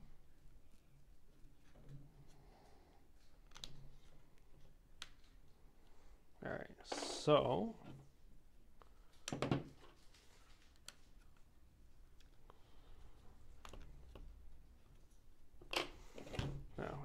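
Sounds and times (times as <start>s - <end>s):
faint clicks and taps: 1.4s - 6.0s.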